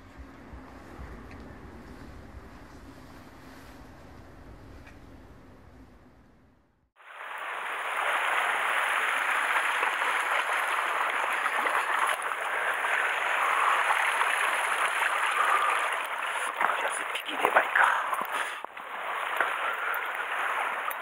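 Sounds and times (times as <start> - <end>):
surf washing over rocks: 7.0 - 21.0.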